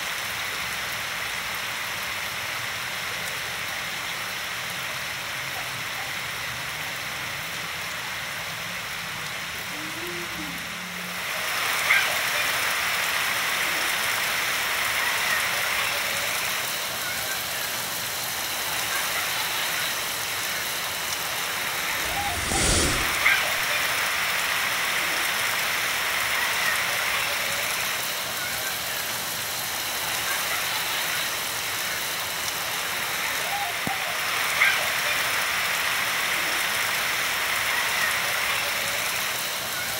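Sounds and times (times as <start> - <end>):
heavy rain hiss: 0.0 - 39.9
low burst: 21.8 - 23.7.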